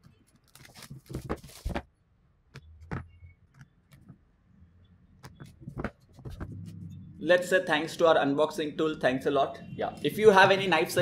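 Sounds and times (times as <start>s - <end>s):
shrink-wrap crinkling: 0.3s - 1.8s.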